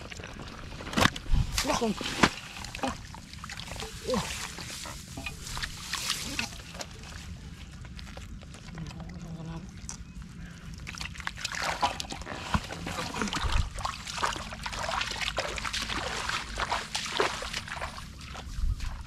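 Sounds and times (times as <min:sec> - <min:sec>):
hands splashing in water: 0:10.9 - 0:18.5.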